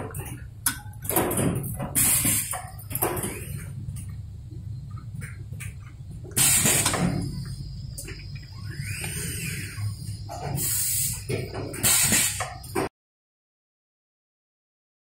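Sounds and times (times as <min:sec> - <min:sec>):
low factory hum: 0:00.0 - 0:12.9
pneumatic press air hissing: 0:01.2 - 0:03.4, 0:06.3 - 0:07.6, 0:08.6 - 0:12.9.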